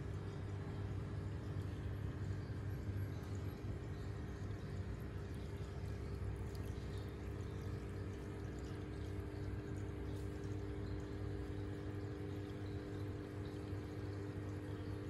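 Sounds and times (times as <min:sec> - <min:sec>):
aquarium pump humming: 0:00.0 - 0:15.0
water trickling: 0:00.0 - 0:15.0.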